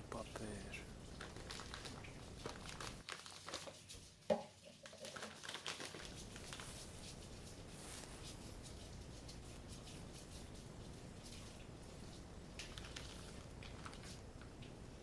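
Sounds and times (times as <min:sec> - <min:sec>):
plastic packet crinkling: 0:01.0 - 0:04.0, 0:04.8 - 0:07.5, 0:12.6 - 0:14.4.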